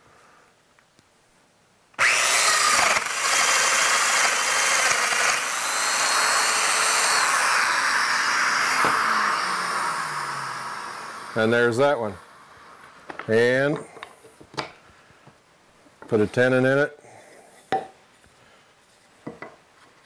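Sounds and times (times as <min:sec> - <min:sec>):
dust extractor running: 0:02.0 - 0:12.4
power joiner running: 0:02.0 - 0:12.4.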